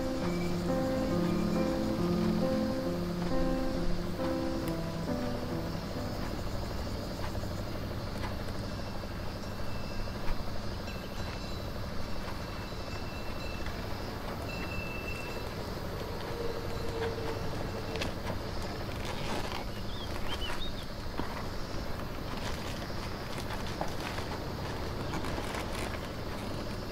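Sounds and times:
faint high chirps: 0.0 - 7.8.

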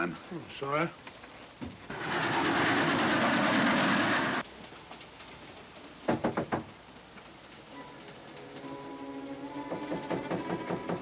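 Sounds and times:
train wheels clattering on rails: 1.8 - 4.4, 9.6 - 11.0.

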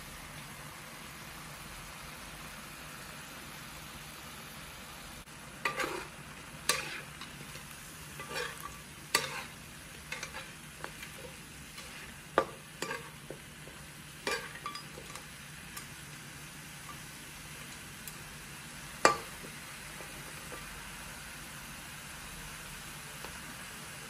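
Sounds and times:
meat sizzling: 0.0 - 24.0
metal spatula scraping a wok: 5.6 - 15.9.

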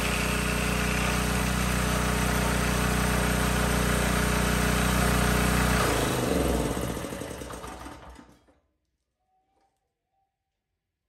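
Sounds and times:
generator winding down: 0.0 - 8.2
generator engine running: 0.0 - 8.3.

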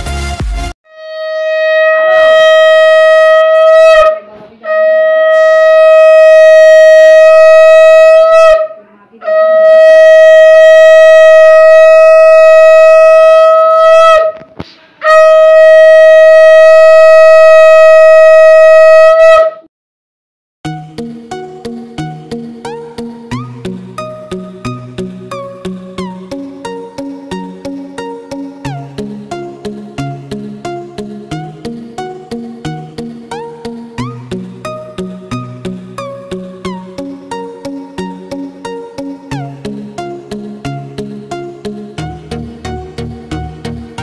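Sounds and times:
conch shell blasts: 0.9 - 14.4, 15.0 - 19.6.

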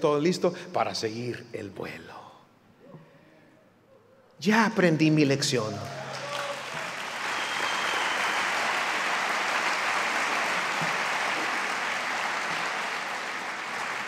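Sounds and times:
congregation applauding: 5.9 - 14.0.

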